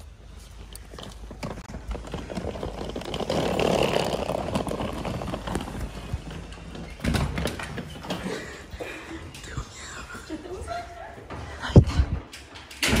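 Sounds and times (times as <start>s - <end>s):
suitcase rolling over paving tiles: 0.2s - 8.5s.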